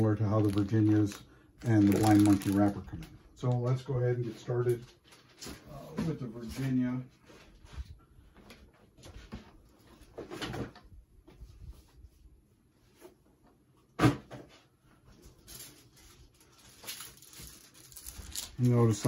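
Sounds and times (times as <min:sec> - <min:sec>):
soft handling rustles and clicks: 0:15.0 - 0:19.0.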